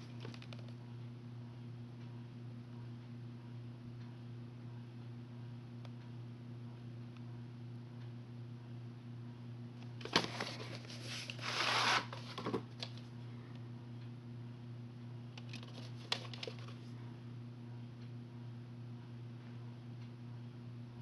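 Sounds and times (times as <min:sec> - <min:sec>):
cassette sleeve rubbing: 0:10.0 - 0:13.0, 0:15.4 - 0:16.8.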